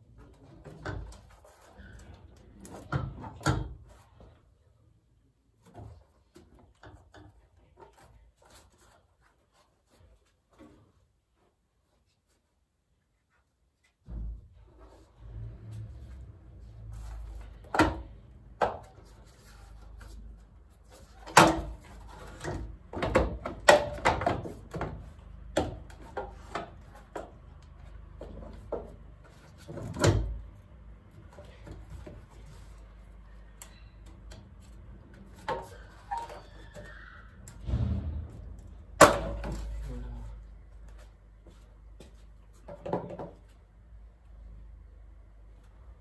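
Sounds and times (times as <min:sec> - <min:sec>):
loud knocks: 0:37.6 - 0:39.7.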